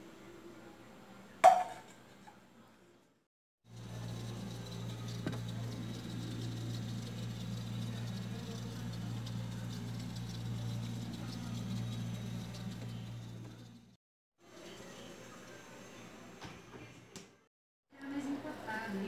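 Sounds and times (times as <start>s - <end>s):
refrigerator humming: 3.7s - 14.0s.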